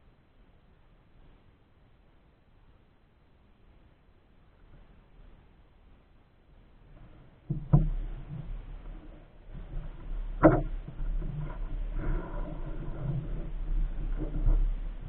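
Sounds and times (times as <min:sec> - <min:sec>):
soft water noise: 0:00.0 - 0:15.0
low rumble: 0:06.5 - 0:15.0
paddle splashing water: 0:06.9 - 0:15.0.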